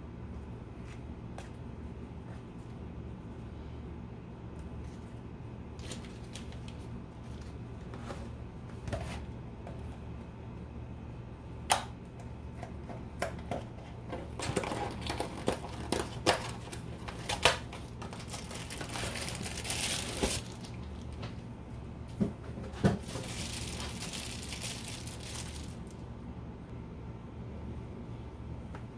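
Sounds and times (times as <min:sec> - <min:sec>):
steady low hum: 0:00.0 - 0:28.9
paper wrapper crumpling: 0:05.8 - 0:06.8, 0:14.4 - 0:21.2, 0:23.0 - 0:26.0.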